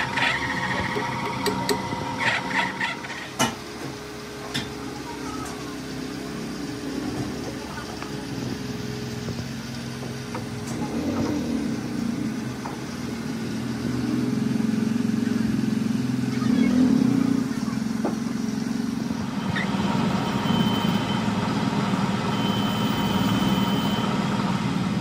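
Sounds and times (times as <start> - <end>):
metal lathe humming: 0.0 - 15.0.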